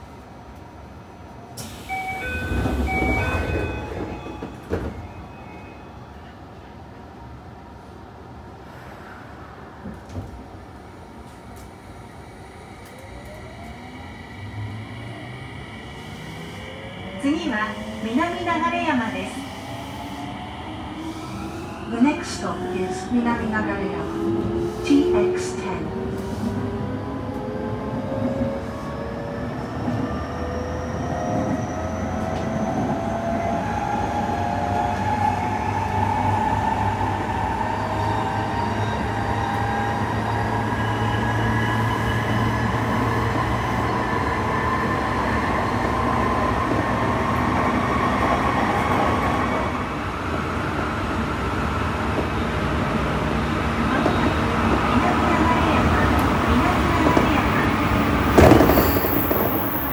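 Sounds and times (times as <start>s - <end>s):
train running gear rumble: 52.0s - 59.9s.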